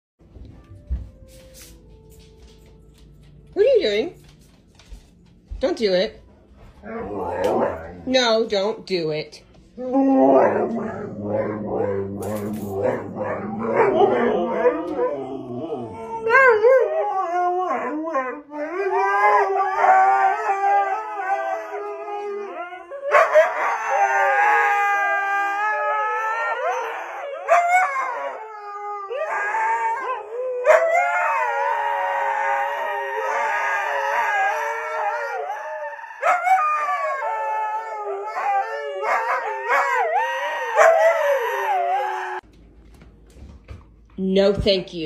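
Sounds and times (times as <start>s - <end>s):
huskies howling: 6.8s - 8.1s, 9.8s - 42.5s.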